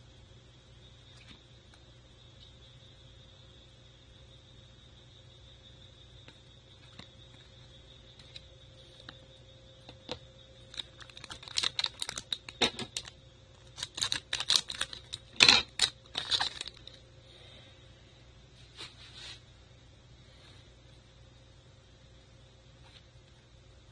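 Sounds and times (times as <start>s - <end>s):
cards and packaging clicks and rustles: 10.1s - 17.0s.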